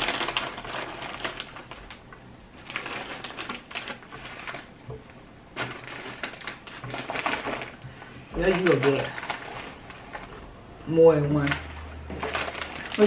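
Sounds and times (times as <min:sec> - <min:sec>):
crisp packet crinkling: 0:00.0 - 0:13.0.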